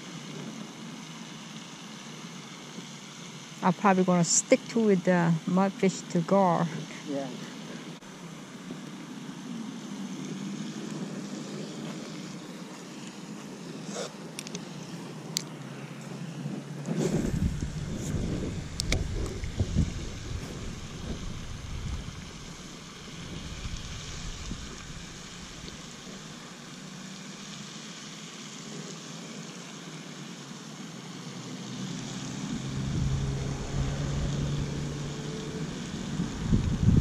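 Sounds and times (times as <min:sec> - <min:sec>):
low motor hum: 0:03.6 - 0:27.3, 0:30.8 - 0:37.0
wind rumbling on microphone: 0:16.0 - 0:26.4, 0:32.0 - 0:37.0.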